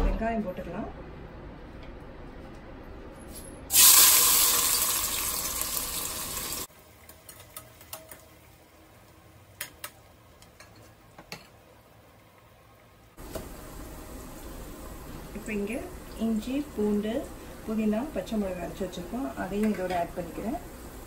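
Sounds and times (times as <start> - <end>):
onions sizzling in hot oil: 3.7 - 6.7, 13.2 - 21.0.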